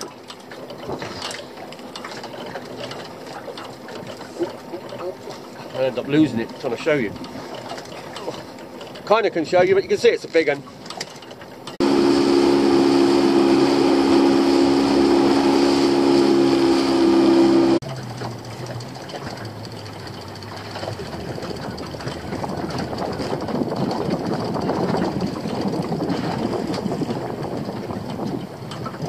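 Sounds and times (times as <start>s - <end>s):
boat engine running: 0.0s - 29.0s
water lapping against hull: 0.0s - 29.0s
wind on microphone: 11.8s - 17.9s, 19.9s - 29.0s.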